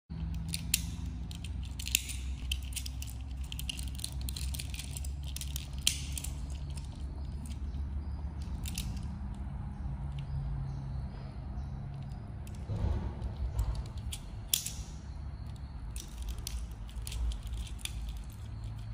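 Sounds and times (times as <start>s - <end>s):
plastic toy parts clicking: 0.1s - 9.4s, 13.3s - 18.9s
steady low hum: 0.1s - 18.9s.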